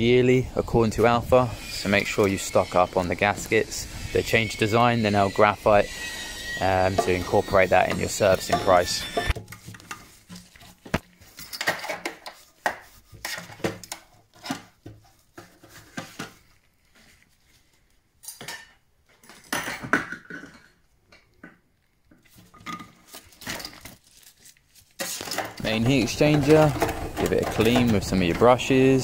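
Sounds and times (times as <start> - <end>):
tools clinking on sheet metal: 6.9 - 9.4.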